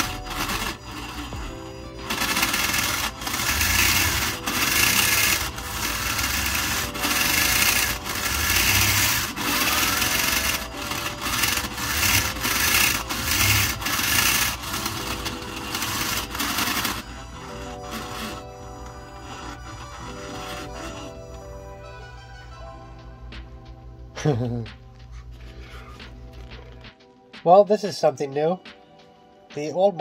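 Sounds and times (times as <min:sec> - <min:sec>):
linear actuator motor running: 0:00.0 - 0:21.5.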